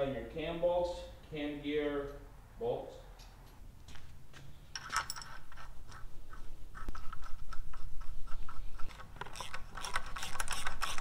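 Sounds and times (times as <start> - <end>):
ratchet clicking: 9.2 - 11.0.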